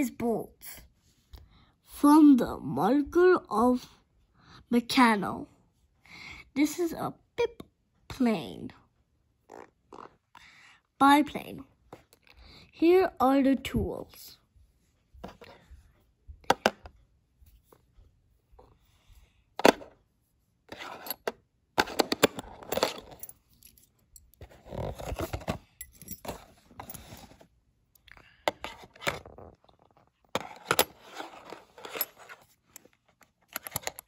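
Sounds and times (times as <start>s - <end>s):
small metal parts clinking: 22.6s - 27.2s
cardboard and paper rustling: 24.4s - 27.6s, 28.6s - 33.2s.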